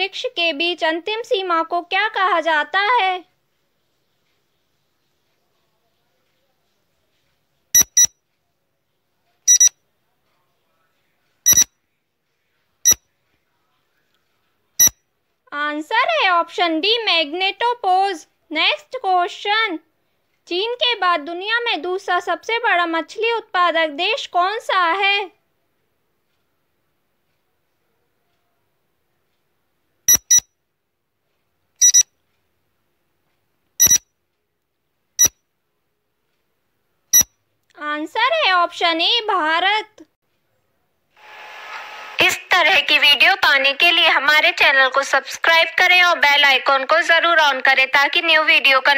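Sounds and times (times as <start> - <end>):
short high electronic beeps: 7.8 - 8.2, 9.5 - 9.8, 11.5 - 11.7, 30.1 - 30.5, 31.8 - 32.1, 33.8 - 34.0.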